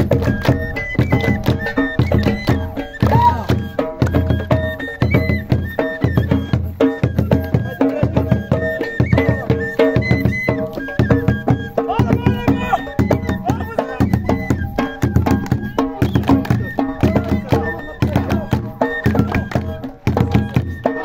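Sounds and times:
hand clapping: 0.0s - 3.3s, 10.5s - 11.2s, 14.8s - 21.0s
frame drum beat: 0.0s - 21.0s.

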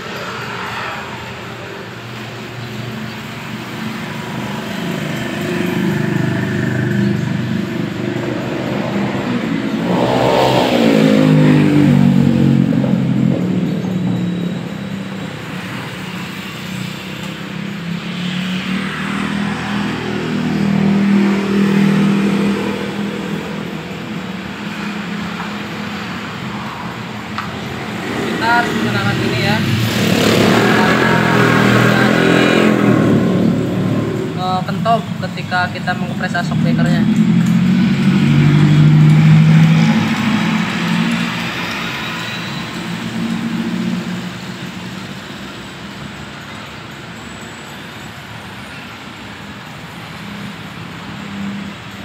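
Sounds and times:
small motorcycle engine passing: 3.8s - 16.5s.

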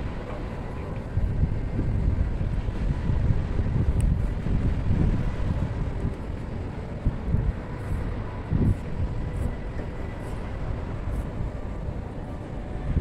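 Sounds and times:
wind buffeting microphone: 0.0s - 13.0s
faint steady tones: 5.1s - 13.0s.

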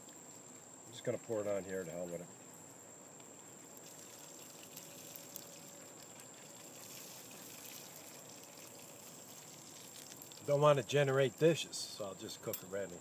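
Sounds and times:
oil trickling into a pan: 3.6s - 11.5s.

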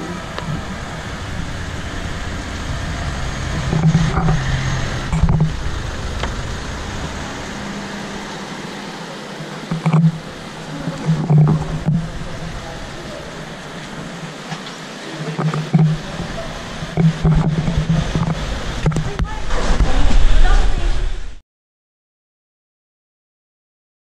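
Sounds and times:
car engine passing: 0.0s - 9.4s.

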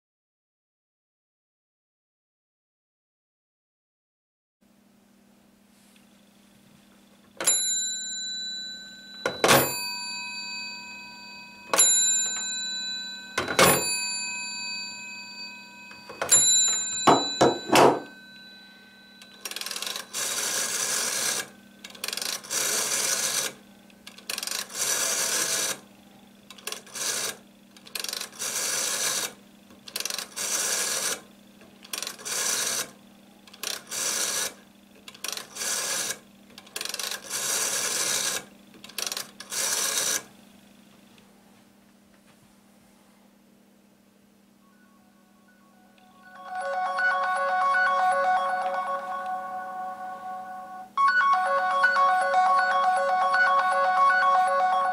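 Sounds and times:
telephone bell ting: 7.4s - 21.5s, 44.7s - 54.9s
rotary dial whirring: 19.1s - 25.8s, 26.5s - 40.3s.

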